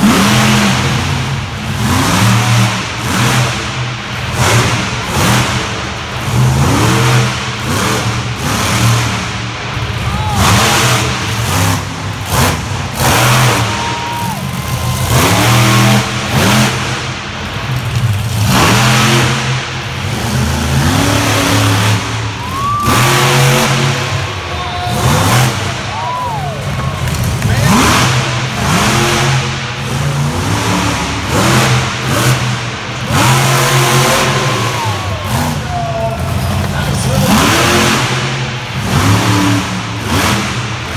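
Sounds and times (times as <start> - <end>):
truck engine revving hard: 0.0 - 40.9.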